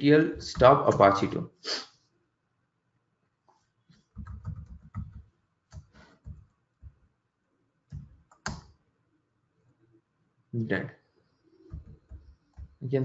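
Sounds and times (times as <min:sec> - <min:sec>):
keyboard typing: 0:03.9 - 0:07.0, 0:07.9 - 0:08.8, 0:11.6 - 0:12.9.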